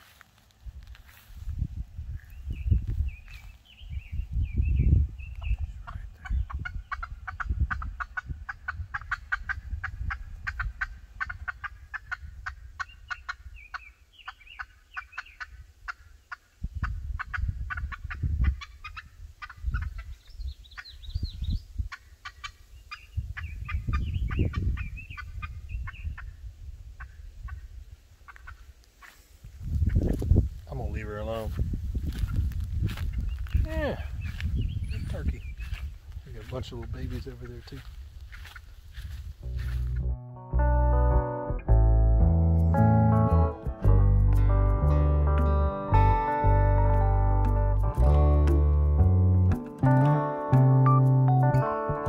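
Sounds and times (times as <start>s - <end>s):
turkeys clucking and peeping: 5.3s - 21.0s, 21.8s - 26.4s, 27.0s - 30.2s, 31.5s - 40.1s
low rumble: 39.0s - 50.0s.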